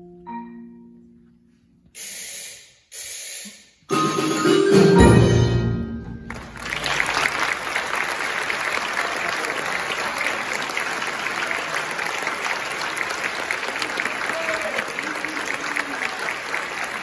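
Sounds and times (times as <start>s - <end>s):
audience applauding: 6.2s - 17.0s.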